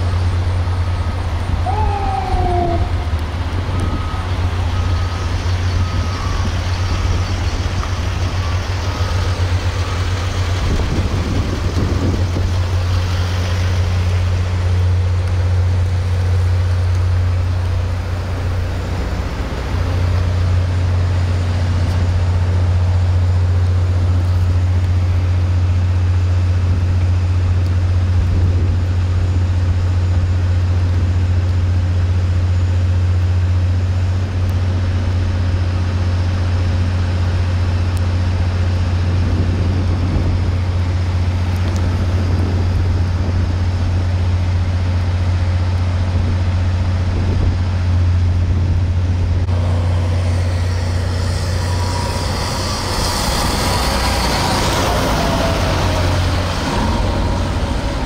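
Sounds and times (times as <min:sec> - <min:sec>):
faint reversing beeper: 0:01.6 - 0:10.4, 0:49.8 - 0:58.0.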